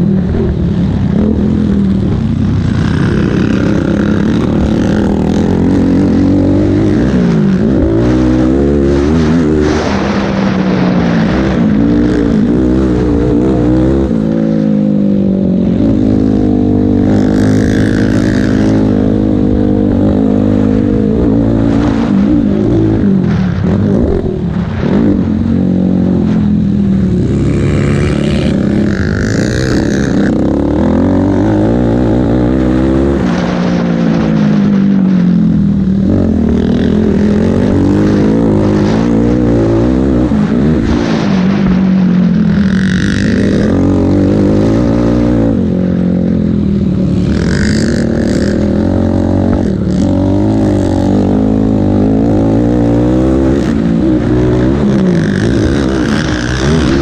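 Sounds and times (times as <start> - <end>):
quad engine revving hard: 47.0 - 57.0.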